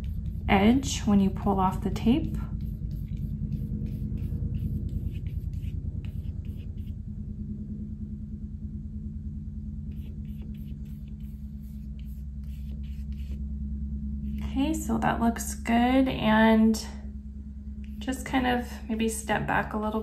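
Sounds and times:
brush stroking paint on paper: 0.0s - 7.0s, 9.9s - 13.4s.

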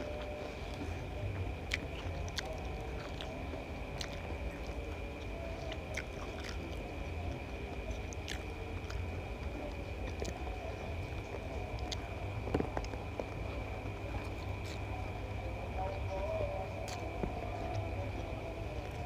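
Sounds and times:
high whine: 0.0s - 19.0s
low hum: 0.0s - 19.0s
person chewing food: 1.6s - 13.5s, 16.9s - 17.8s.

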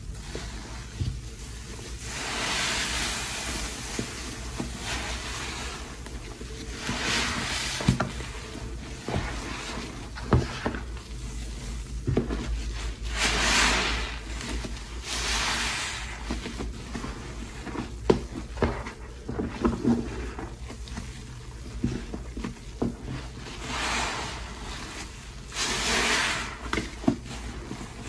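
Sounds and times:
sponge squelching: 0.0s - 28.0s
hissing rush of suds: 2.0s - 6.0s, 13.1s - 14.3s, 23.5s - 26.7s.

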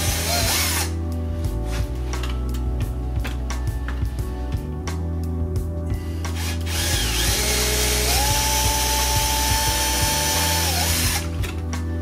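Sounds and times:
cordless drill drilling plastic: 0.0s - 0.9s, 6.4s - 11.3s.

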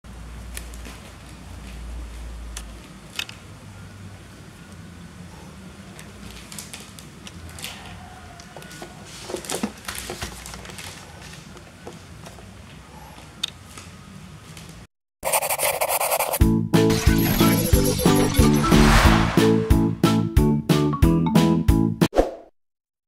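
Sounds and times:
rushing sound effect: 16.9s - 20.2s.

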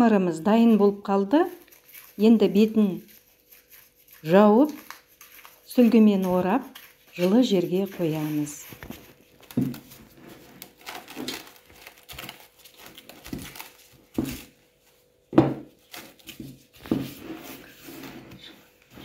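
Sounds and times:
cling film crinkling: 1.5s - 14.5s.

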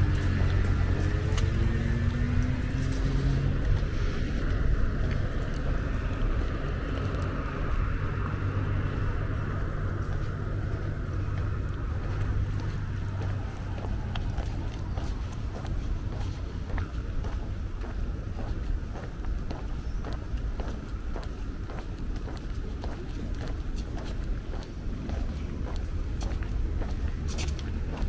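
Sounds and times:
vehicle engine pulling away: 0.0s - 16.8s
traffic hum and tyre noise: 0.0s - 28.0s.

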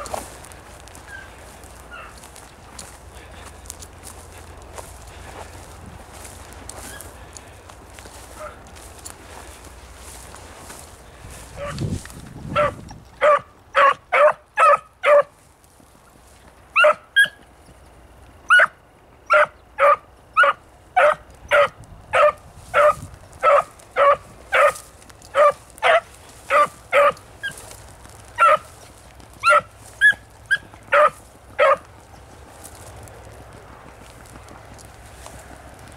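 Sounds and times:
dog barking: 1.9s - 2.2s, 11.6s - 11.8s, 12.5s - 15.3s, 16.8s - 17.4s, 18.5s - 27.6s, 28.4s - 28.7s, 29.4s - 31.8s.

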